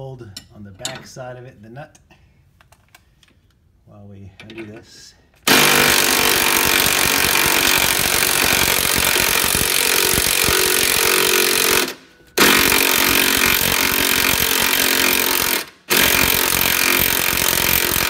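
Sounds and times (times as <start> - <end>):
cordless impact driver hammering: 5.5 - 18.0.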